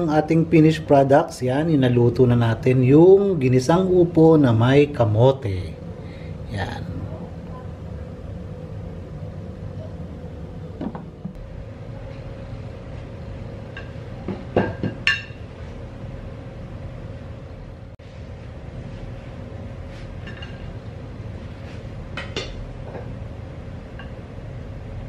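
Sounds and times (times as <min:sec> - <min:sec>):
low background hum: 0:00.0 - 0:25.0
kitchenware clinking: 0:13.7 - 0:15.5.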